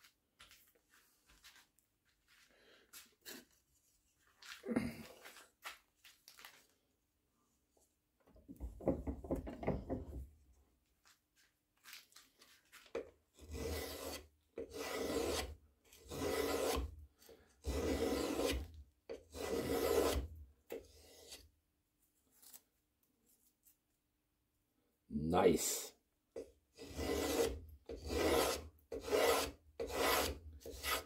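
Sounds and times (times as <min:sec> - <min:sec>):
gouge shaving wood: 0:13.4 - 0:21.4, 0:26.8 - 0:31.0.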